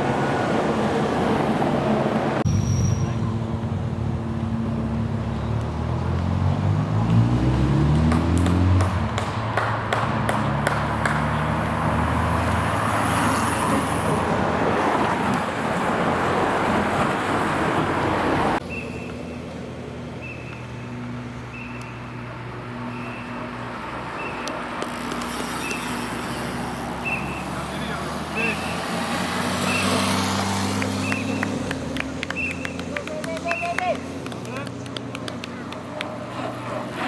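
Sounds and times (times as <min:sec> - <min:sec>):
road noise: 0:00.0 - 0:37.0
car driving past: 0:02.4 - 0:15.3, 0:20.2 - 0:33.0.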